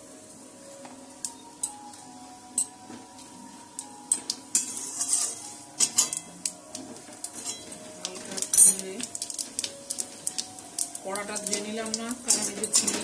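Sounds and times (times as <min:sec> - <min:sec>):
metal spatula scraping a wok: 0:04.5 - 0:06.3, 0:07.3 - 0:08.8.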